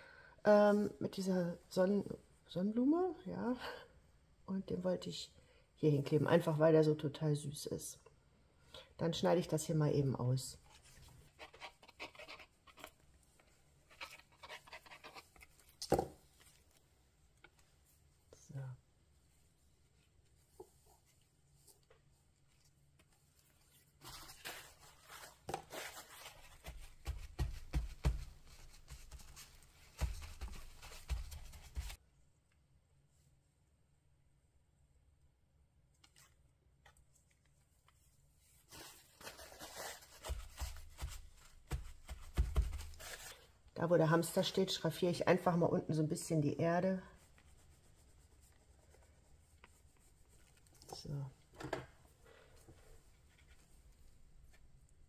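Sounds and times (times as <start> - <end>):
glue stick rubbing paper: 11.3 - 13.0, 13.9 - 15.5
paper towel rubbing on paper: 47.1 - 50.6.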